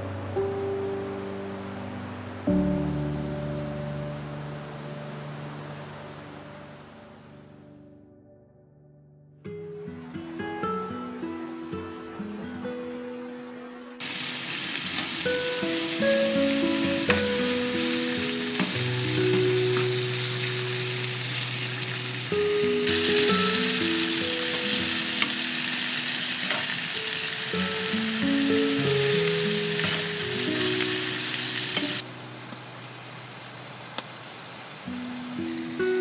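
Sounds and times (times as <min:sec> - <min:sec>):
meat sizzling in a pan: 0:14.0 - 0:32.0.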